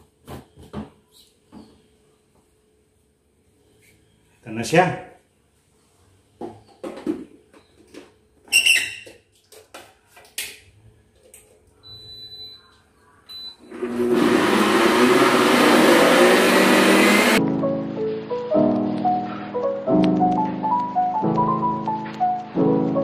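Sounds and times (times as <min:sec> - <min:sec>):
blender motor running: 0:13.7 - 0:17.4.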